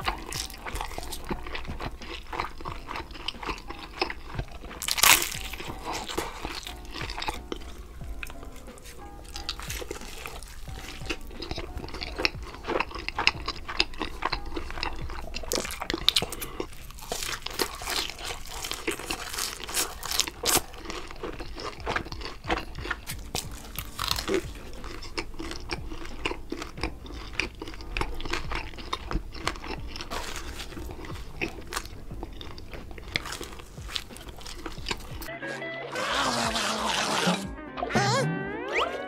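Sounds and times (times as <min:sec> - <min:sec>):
crunching fried fish: 0:00.0 - 0:35.3
background music: 0:00.0 - 0:39.0.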